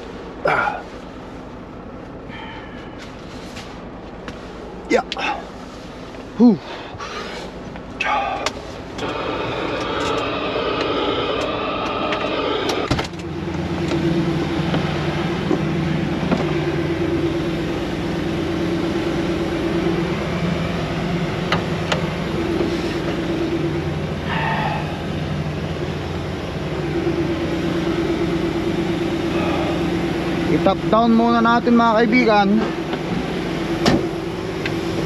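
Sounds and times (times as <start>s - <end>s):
diesel truck engine idling: 0.0s - 35.0s
sharp clunk of cab door: 33.8s - 34.1s.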